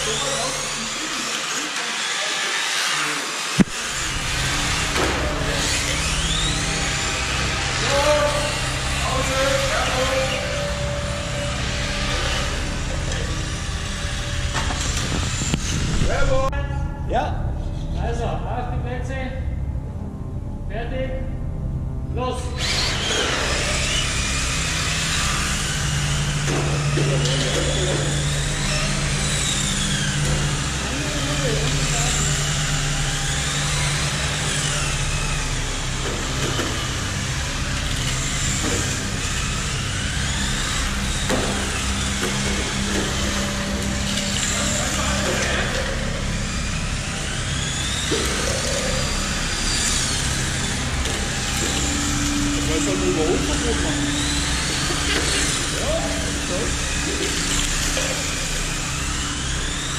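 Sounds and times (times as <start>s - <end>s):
electric motors whining: 0.0s - 20.7s, 21.3s - 59.9s
steady rushing noise: 3.6s - 17.2s.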